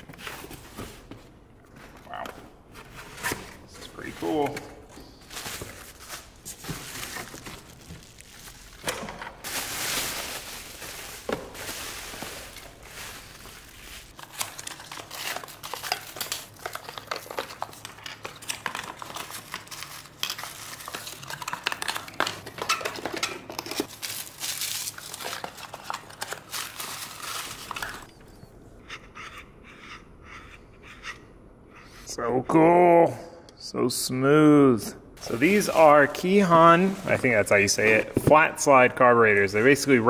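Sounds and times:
plastic wrap and cardboard rustling: 0:02.7 - 0:28.1, 0:35.2 - 0:40.0.

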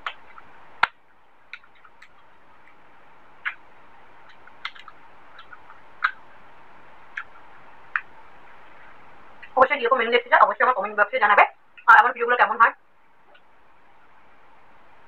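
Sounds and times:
chewing with wet mouth smacks: 0:00.0 - 0:02.8, 0:03.4 - 0:03.6, 0:04.2 - 0:06.3, 0:07.1 - 0:08.1.

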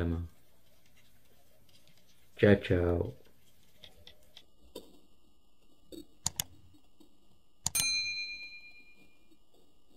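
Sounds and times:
mouse clicks: 0:06.2 - 0:06.6
bell-like chime: 0:07.7 - 0:09.1.

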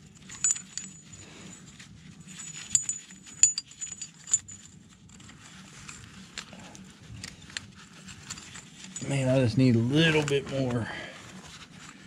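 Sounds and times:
chain links clanking: 0:00.0 - 0:06.0, 0:06.7 - 0:10.3
steel chain clinking and rattling: 0:00.0 - 0:10.4.

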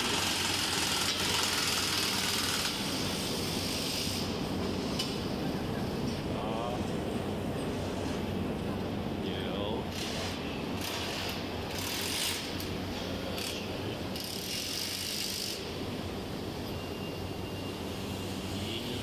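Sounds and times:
low machinery hum: 0:00.0 - 0:19.0
short bursts of hiss: 0:01.5 - 0:04.9.

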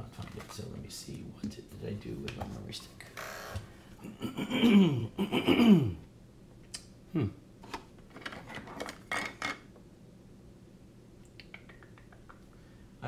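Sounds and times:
person mumbling: 0:04.0 - 0:06.0, 0:07.1 - 0:07.4.

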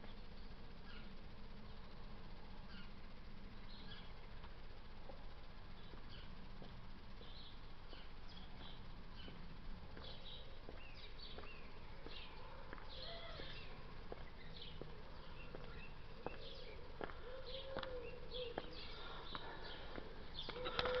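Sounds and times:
small birds chirping: 0:00.0 - 0:21.0
high heels clicking on pavement: 0:14.0 - 0:17.9.

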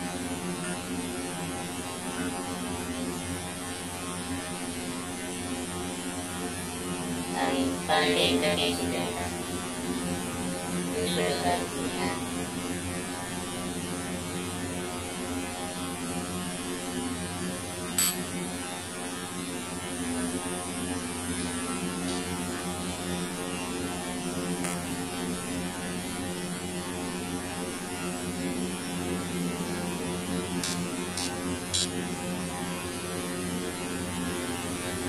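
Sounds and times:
electrical hum: 0:06.9 - 0:13.7, 0:27.0 - 0:35.0.

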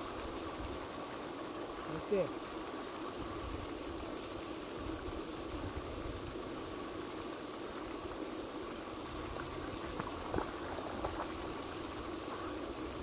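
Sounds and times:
fountain spray splashing: 0:00.0 - 0:13.0.

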